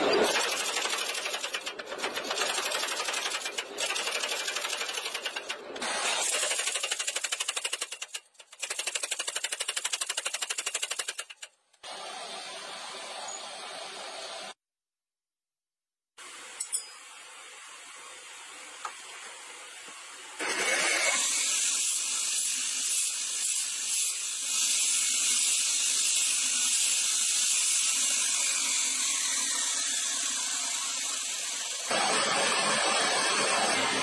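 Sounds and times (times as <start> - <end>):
grinding wheel on steel blade: 0.0 - 11.5, 20.4 - 34.0
forge burner rushing: 20.4 - 34.0.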